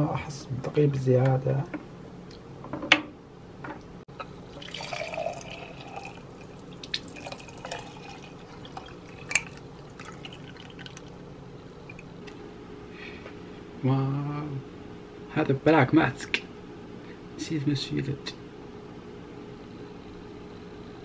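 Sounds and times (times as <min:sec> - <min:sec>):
juice pouring and dripping into sink: 0:04.2 - 0:11.2.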